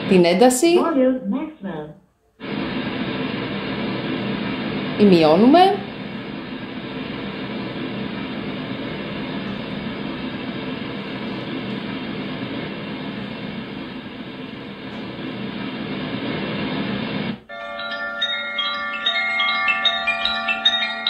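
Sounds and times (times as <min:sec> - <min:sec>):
white noise with low drone: 0:02.4 - 0:17.5
chiming melody: 0:17.5 - 0:21.0.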